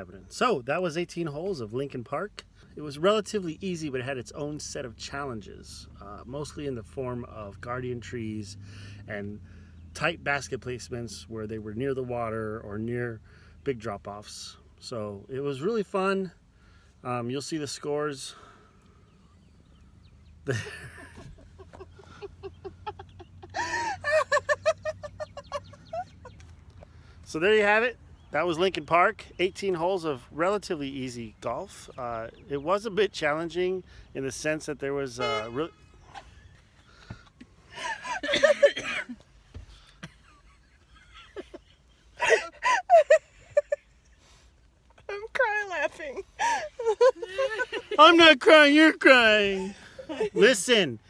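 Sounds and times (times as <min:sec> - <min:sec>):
group of people laughing: 0:20.5 - 0:26.4, 0:37.7 - 0:39.2, 0:40.0 - 0:44.0, 0:46.4 - 0:48.2, 0:49.5 - 0:50.5.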